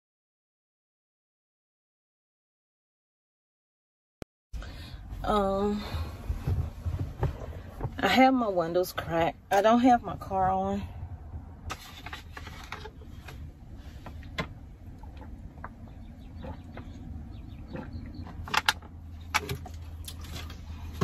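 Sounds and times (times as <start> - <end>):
low steady hum: 4.6 - 21.0.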